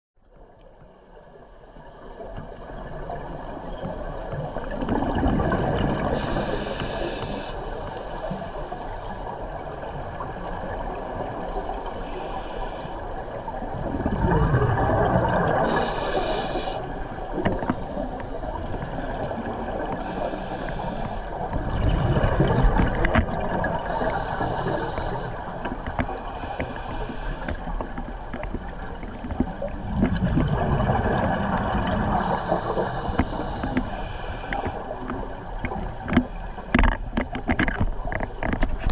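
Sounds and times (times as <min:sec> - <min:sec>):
gurgling of exhaled bubbles: 0:04.6 - 0:07.1, 0:13.6 - 0:25.4, 0:28.6 - 0:33.8
regulator hiss: 0:06.2 - 0:09.5, 0:11.4 - 0:13.1, 0:15.6 - 0:18.9, 0:19.9 - 0:21.5, 0:23.8 - 0:27.8, 0:32.2 - 0:35.0.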